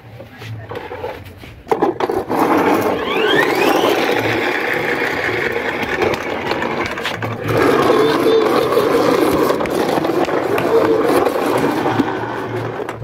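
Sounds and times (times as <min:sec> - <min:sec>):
toy car gear motor whirring: 0:02.0 - 0:13.0.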